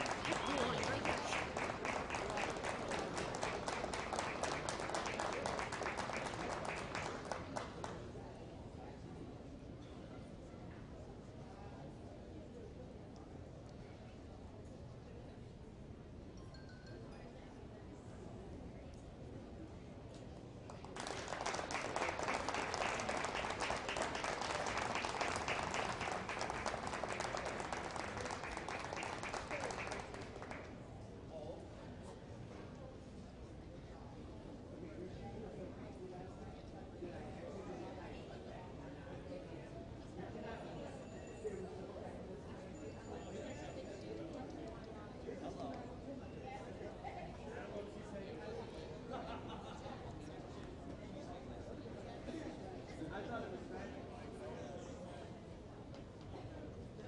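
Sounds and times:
audience applauding: 0.0s - 7.7s, 20.9s - 30.7s.

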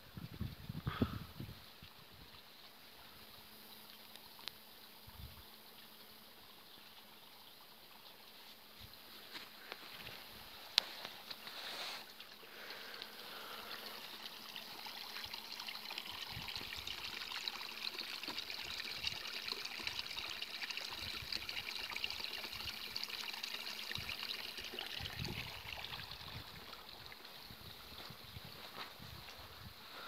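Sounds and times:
water pouring into stone trough: 9.6s - 28.1s.

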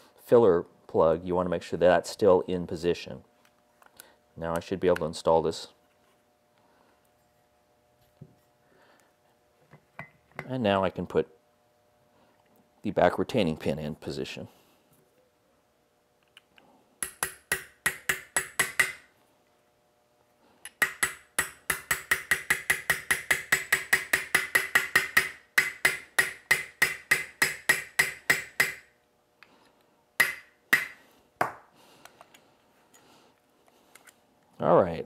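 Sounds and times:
hammer tapping metal punch: 17.0s - 19.1s, 20.7s - 28.9s, 30.2s - 31.6s.

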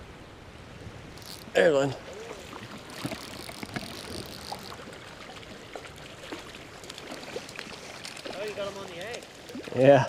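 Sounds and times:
creek flowing: 0.2s - 10.0s.

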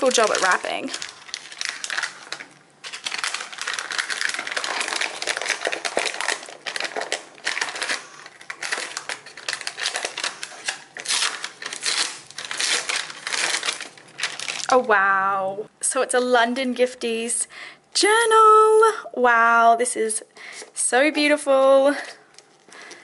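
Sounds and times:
wrapping paper crinkling: 0.0s - 14.8s.

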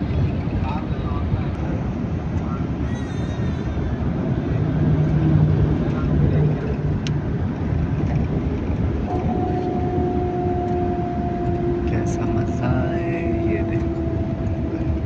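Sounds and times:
road and engine noise: 0.0s - 15.0s
trucks passing: 0.0s - 15.0s
low hum: 4.0s - 15.0s.

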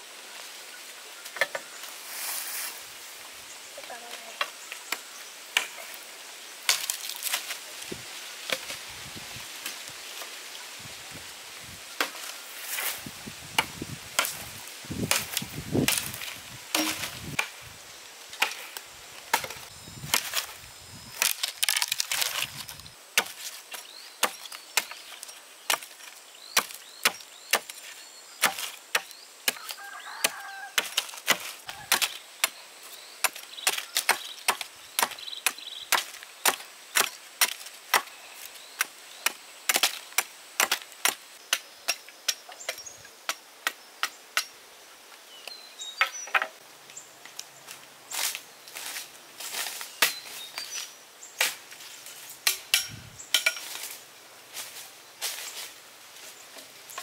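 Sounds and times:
hand tool striking wood: 15.0s - 17.5s, 52.4s - 53.7s.

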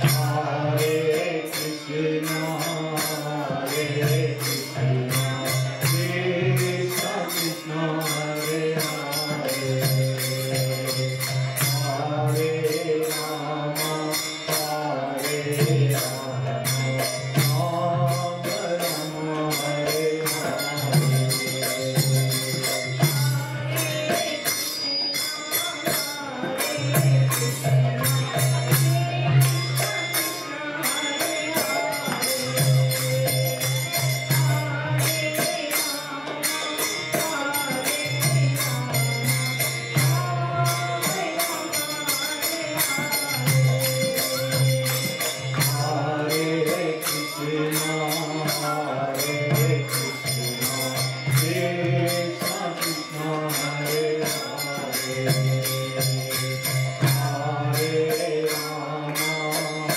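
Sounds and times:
harmonium drone: 0.0s - 59.9s
small hand cymbals: 0.0s - 59.9s
woman singing chant: 23.0s - 49.8s.

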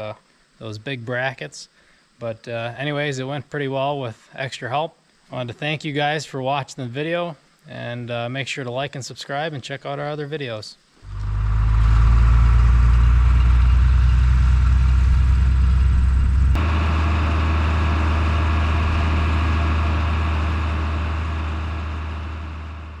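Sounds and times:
tractor engine running: 11.0s - 23.0s.

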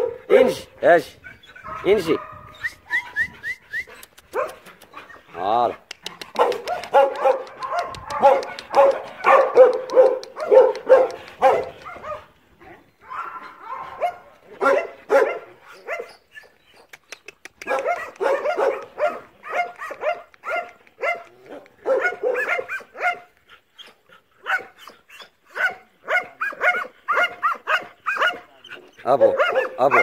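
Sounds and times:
dog barking: 0.0s - 0.2s, 1.6s - 2.5s, 4.3s - 4.6s, 6.3s - 12.3s, 13.1s - 16.1s, 17.6s - 23.3s, 24.4s - 24.8s, 25.5s - 28.5s, 29.1s - 30.0s.

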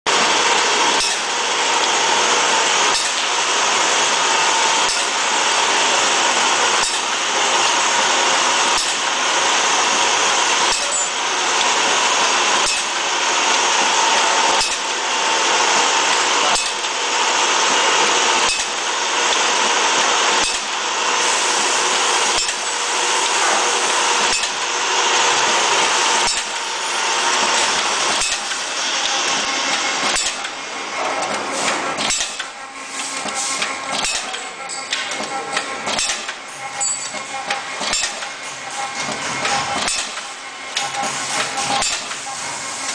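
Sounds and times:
packing machine clatter and hiss: 0.1s - 42.9s
sharp machine clack: 0.1s - 42.9s.

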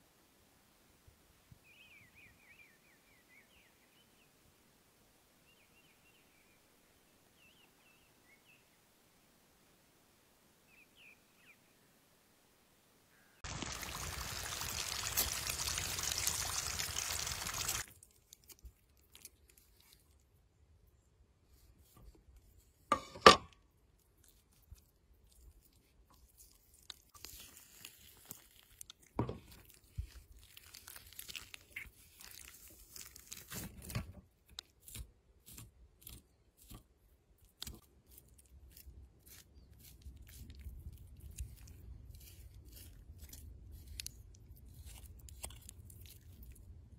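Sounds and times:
small clicks and crunches: 17.6s - 20.2s, 24.2s - 46.8s
knife tearing chicken flesh: 24.0s - 46.8s.

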